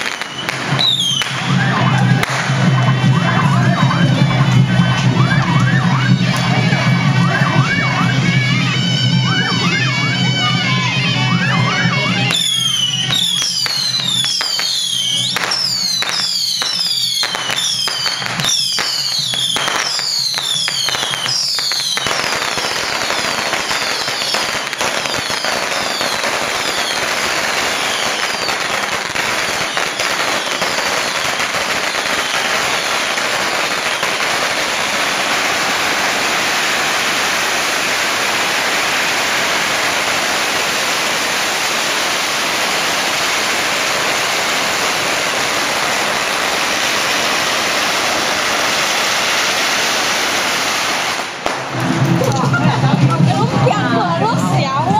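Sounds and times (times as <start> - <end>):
music with high notes and beats: 0.0 - 34.8
firecrackers crackling: 0.0 - 54.9.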